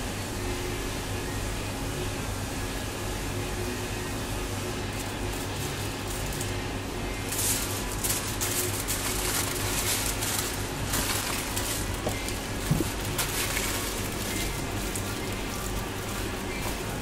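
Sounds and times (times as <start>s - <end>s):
steady low hum: 0.0s - 17.0s
aluminium foil crinkling: 4.6s - 17.0s.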